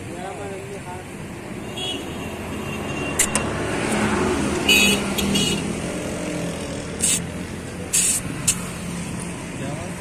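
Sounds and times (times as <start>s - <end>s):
air escaping hisses: 7.0s - 8.9s
compressed air hissing: 7.0s - 8.9s.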